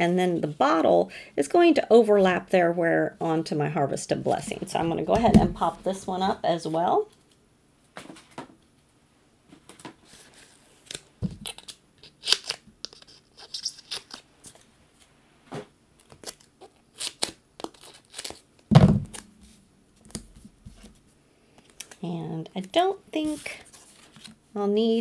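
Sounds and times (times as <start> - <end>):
dull thumps: 4.7 - 6.0, 18.7 - 19.6
adhesive peeling and tearing: 10.8 - 14.2, 16.0 - 18.4
paper rustling: 23.2 - 24.4.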